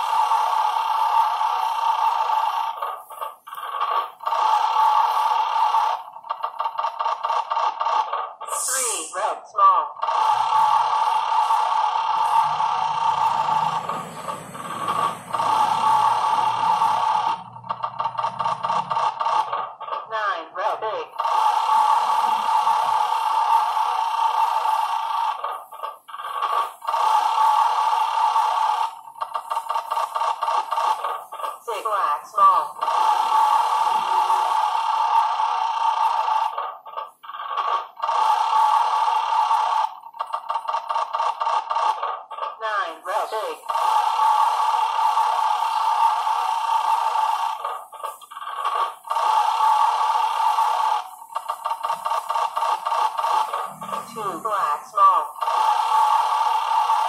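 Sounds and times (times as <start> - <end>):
electronic game machine tones: 10.0 - 19.5, 43.1 - 57.0
buzzy electronic tone: 53.4 - 55.3.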